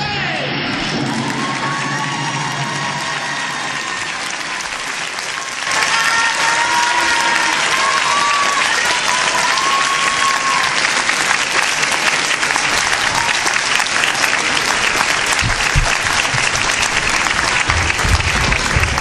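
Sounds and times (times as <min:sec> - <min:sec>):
audience applauding: 0:00.8 - 0:19.0
low thuds: 0:15.4 - 0:19.0.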